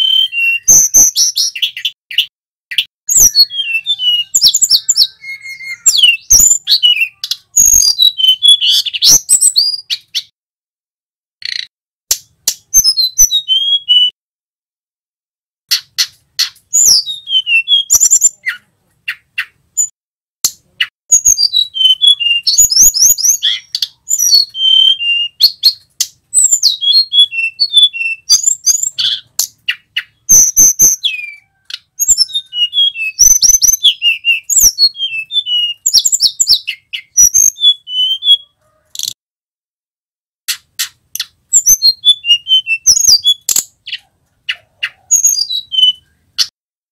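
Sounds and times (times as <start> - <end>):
bird whistling and trilling: 0.0 - 10.3, 12.4 - 14.2, 15.7 - 19.9, 20.8 - 39.2, 40.5 - 46.5
sharp bird clicks: 11.4 - 12.9, 15.7 - 16.9, 40.5 - 41.7.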